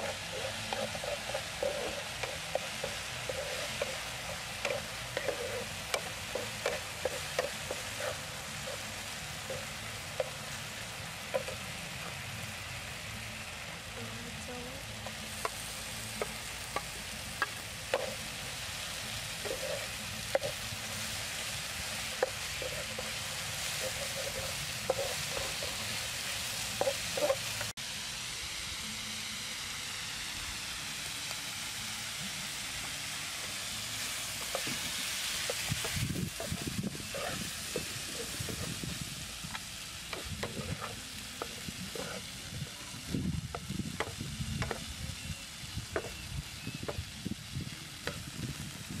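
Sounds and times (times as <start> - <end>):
spatula scraping a pan: 0.0 - 12.1, 15.2 - 27.7, 34.0 - 39.1, 40.0 - 45.3
food sizzling in a frying pan: 0.0 - 49.0.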